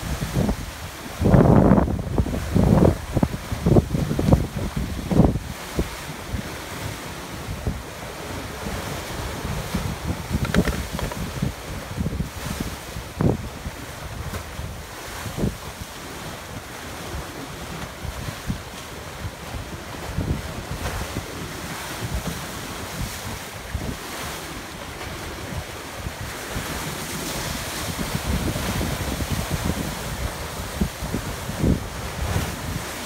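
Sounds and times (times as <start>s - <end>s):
wind thumps on microphone: 0.0s - 6.5s, 8.6s - 15.8s, 25.0s - 33.0s
ocean surf breaking on rocks: 0.0s - 33.0s.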